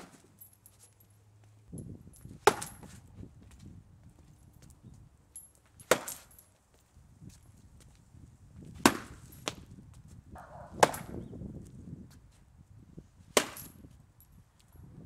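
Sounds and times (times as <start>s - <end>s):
hard chopping impacts on panel: 2.4s - 2.8s, 8.8s - 9.6s, 10.8s - 11.2s, 13.4s - 13.7s.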